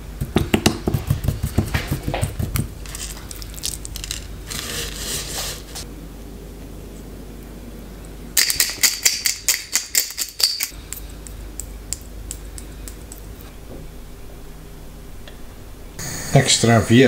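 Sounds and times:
pepper mill grinding: 0:00.8 - 0:05.8, 0:08.4 - 0:11.0.

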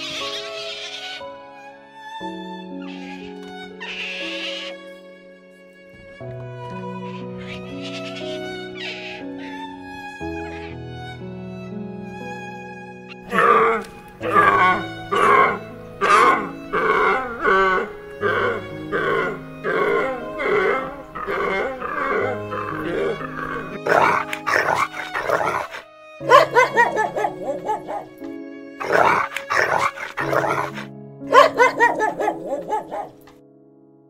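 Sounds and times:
soft background music: 0:00.0 - 0:34.0
short animal calls: 0:03.8 - 0:04.7, 0:07.4 - 0:09.6
dog barking: 0:13.3 - 0:16.6, 0:20.6 - 0:28.2, 0:28.8 - 0:33.3.

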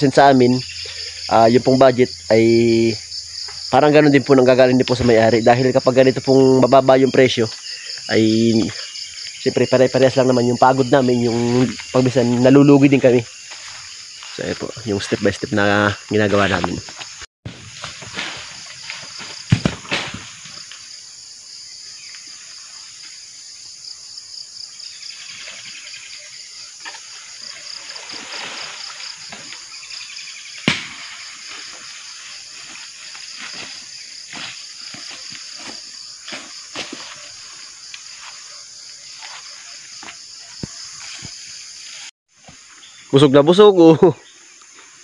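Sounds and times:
insect chorus drone: 0:00.0 - 0:45.0.

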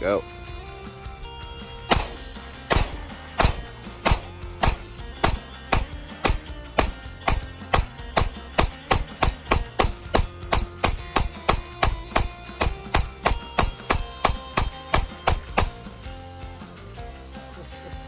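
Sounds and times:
background music with held notes: 0:00.0 - 0:18.0
rapid pistol shots: 0:01.9 - 0:15.8.

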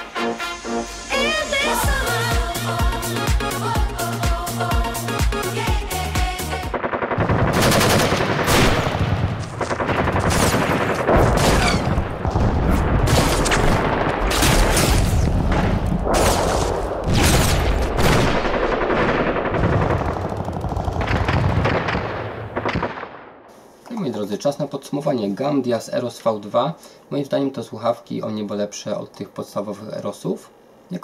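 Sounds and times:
video game automatic gunfire: 0:06.6 - 0:23.2.

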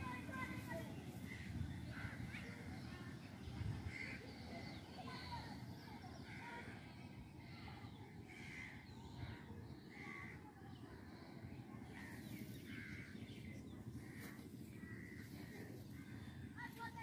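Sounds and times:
crows calling: 0:08.3 - 0:10.7, 0:11.9 - 0:17.0.

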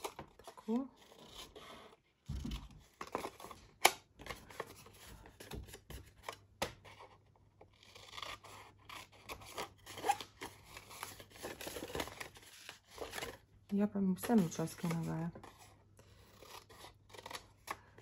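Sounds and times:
paper rustling: 0:07.8 - 0:18.0
scissors snipping paper: 0:14.1 - 0:15.6, 0:16.2 - 0:18.0.

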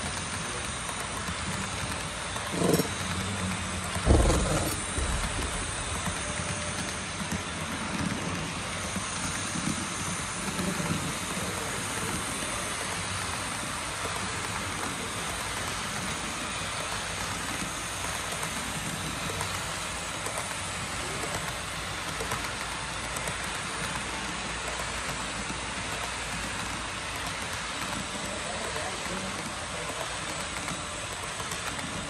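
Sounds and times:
model train wheels rattling: 0:00.0 - 0:08.4.

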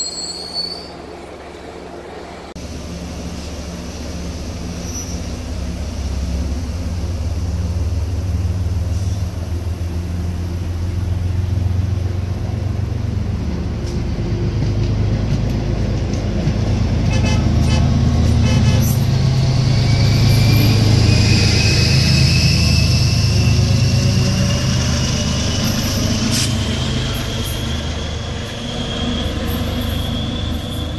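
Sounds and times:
train coaches rolling past: 0:00.0 - 0:30.9
low engine drone: 0:01.0 - 0:30.9
high whine rising in pitch: 0:19.1 - 0:30.9.

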